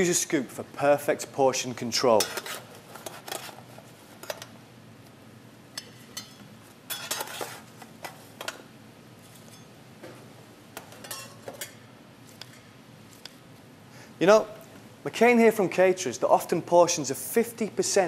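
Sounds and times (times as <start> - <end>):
metal tongs scraping a steel pan: 2.2 - 3.6, 5.8 - 7.6, 11.0 - 11.8.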